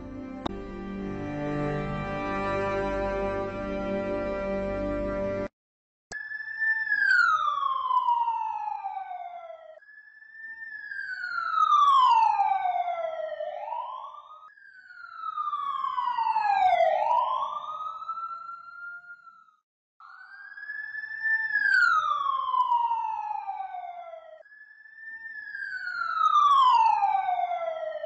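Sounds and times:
siren-like whistling tone: 0:06.1 - 0:28.0.

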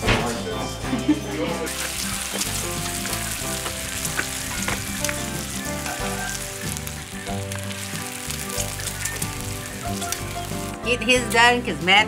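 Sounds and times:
bacon sizzling: 0:01.5 - 0:11.9
fat crackling and popping: 0:01.7 - 0:11.8.

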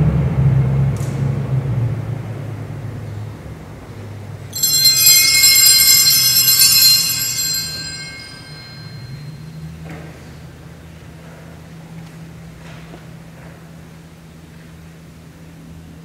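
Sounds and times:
altar bells ringing: 0:04.5 - 0:09.6.

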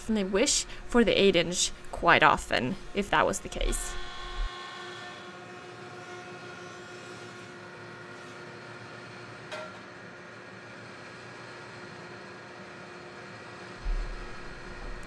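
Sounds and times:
jointer humming: 0:00.0 - 0:04.8, 0:13.8 - 0:15.0.

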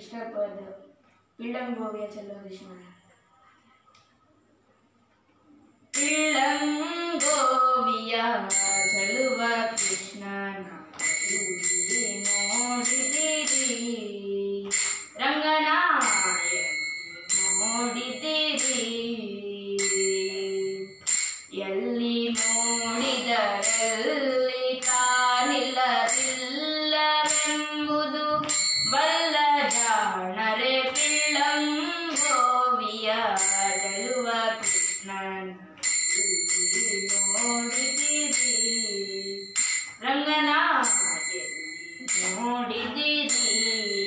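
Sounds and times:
young voices singing devotional song: 0:06.0 - 0:16.7, 0:17.4 - 0:35.6, 0:40.0 - 0:44.0
hand cymbals struck in a beat: 0:08.5 - 0:10.2, 0:11.0 - 0:13.9, 0:14.7 - 0:15.2, 0:19.8 - 0:21.5, 0:22.4 - 0:26.6, 0:27.2 - 0:27.8, 0:28.4 - 0:30.0, 0:33.4 - 0:35.1, 0:35.8 - 0:40.0.

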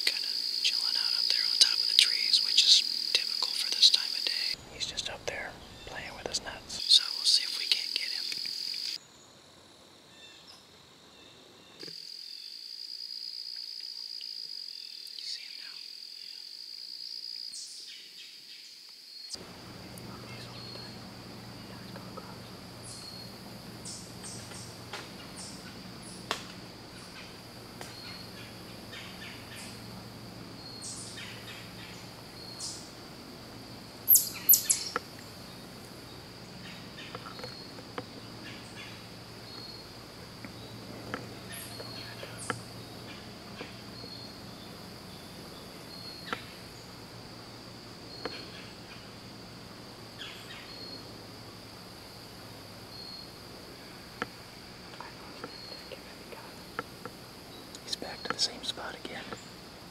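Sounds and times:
pulsing insect chorus: 0:00.0 - 0:59.9
faint ticks: 0:19.3 - 0:29.8, 0:34.1 - 0:36.0, 0:36.6 - 0:44.2, 0:48.2 - 0:49.0, 0:54.1 - 0:59.5
bird chirps: 0:19.9 - 0:26.3, 0:26.9 - 0:33.0, 0:33.8 - 0:46.9.

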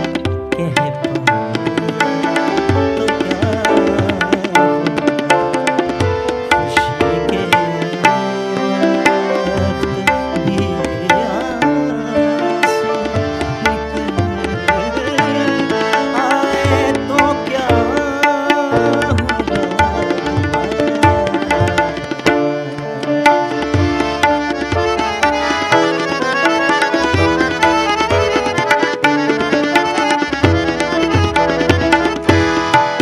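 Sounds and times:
man singing: 0:00.0 - 0:24.7
harmonium: 0:00.0 - 0:33.0
tabla rhythm: 0:00.0 - 0:33.0.

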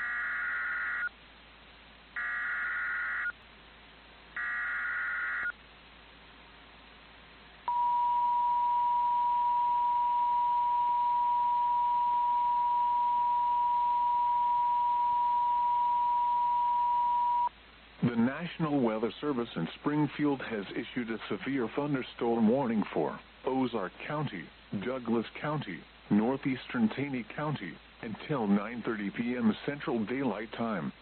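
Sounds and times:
screechy digital data bursts: 0:00.0 - 0:01.1, 0:02.2 - 0:03.4, 0:04.4 - 0:05.6
steady attention tone: 0:07.7 - 0:18.3.

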